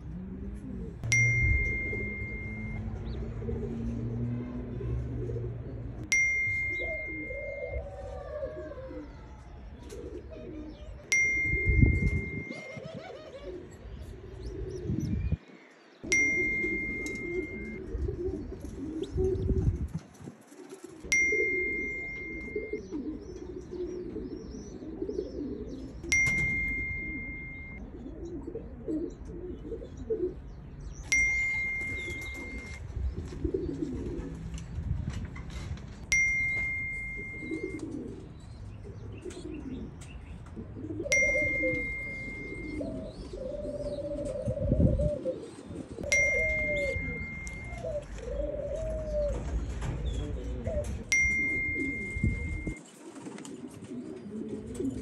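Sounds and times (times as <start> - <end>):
pigeons cooing: 0.0 - 55.0
bell-like ding: 1.0 - 2.9, 6.1 - 7.9, 11.1 - 12.8, 16.1 - 17.8, 21.1 - 22.8, 26.1 - 27.8, 31.1 - 32.8, 36.1 - 38.1, 41.1 - 42.9, 46.0 - 48.0, 51.1 - 52.8.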